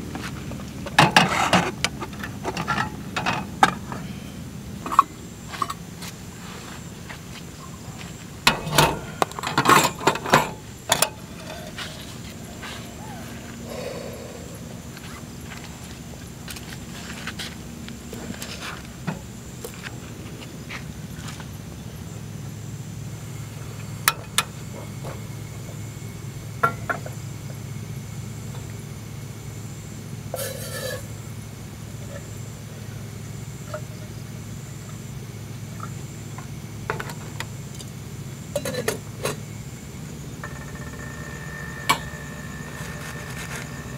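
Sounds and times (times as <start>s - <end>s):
steady low hum: 0.0s - 43.9s
cups and dishes clinking on metal: 38.6s - 39.4s.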